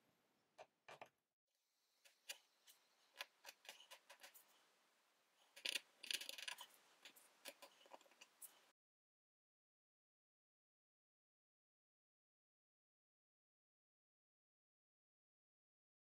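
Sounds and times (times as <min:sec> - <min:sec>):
needle scratching plastic plate: 0:02.1 - 0:04.5, 0:05.4 - 0:08.7.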